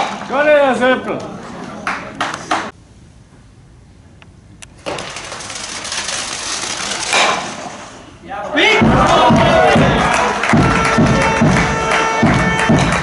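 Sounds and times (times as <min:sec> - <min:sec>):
spectators cheering: 0:08.6 - 0:13.0.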